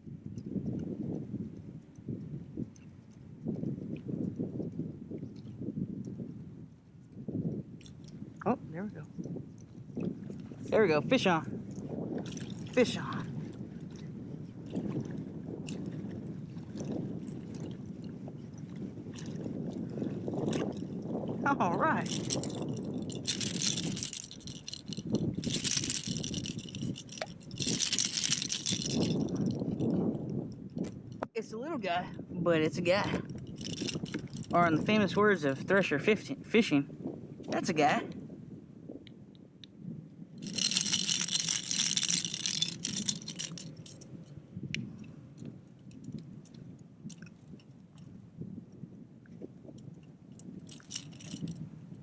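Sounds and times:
fishing lure and hooks rattling: 12.1 - 14.0, 14.8 - 31.2, 33.3 - 35.2, 40.4 - 48.1, 49.7 - 51.8
rapid rattling scrape: 22.1 - 29.3, 40.4 - 44.0.

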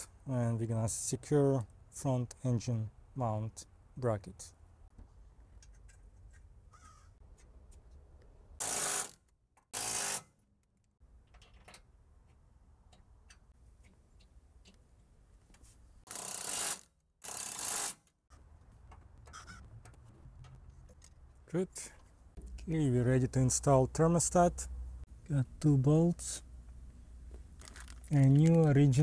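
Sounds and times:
impact wrench bursts: 8.6 - 10.3, 16.1 - 18.1
faint handling clicks and knocks: 18.4 - 22.7, 26.6 - 29.0.

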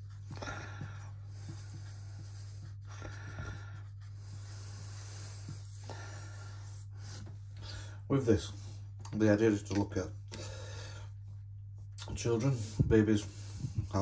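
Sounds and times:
marker scratching on whiteboard: 0.0 - 6.0
steady low hum: 0.0 - 14.0.

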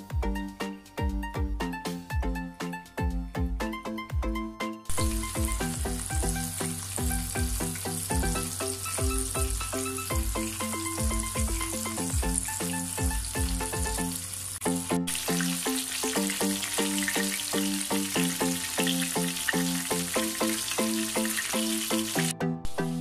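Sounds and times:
music with regular beat: 0.0 - 14.1
chicken frying in hot oil: 4.9 - 22.3.

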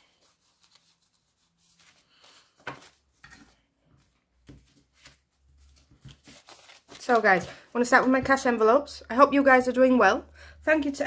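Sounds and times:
banknotes rustling and tapping: 0.0 - 8.6.

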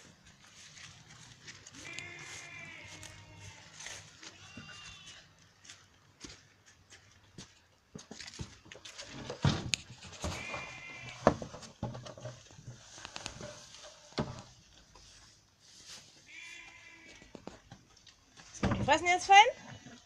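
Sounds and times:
hay rustling: 0.0 - 5.1, 14.8 - 17.0
sheep bleating: 1.8 - 5.3, 16.3 - 17.3.

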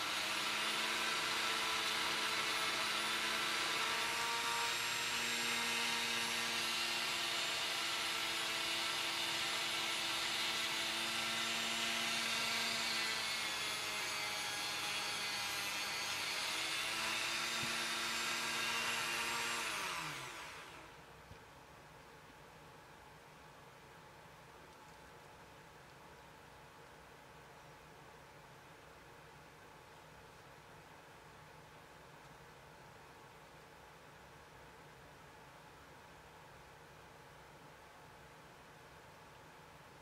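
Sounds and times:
motor winding down: 0.0 - 20.9
rotary tool whining: 0.0 - 20.9.

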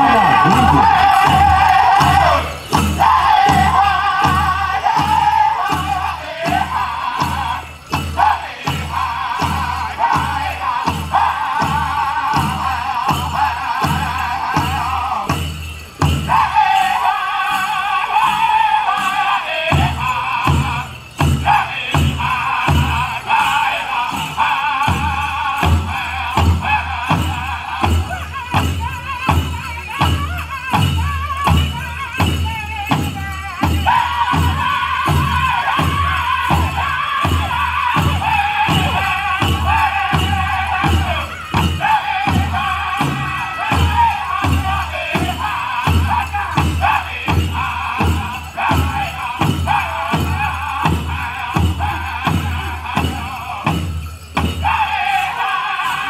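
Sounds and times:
men singing in high voices: 0.0 - 56.0.

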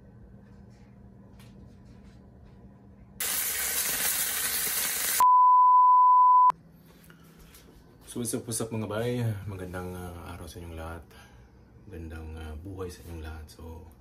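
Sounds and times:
fish sizzling in hot oil: 3.2 - 5.2
high-pitched beep: 5.2 - 6.5.

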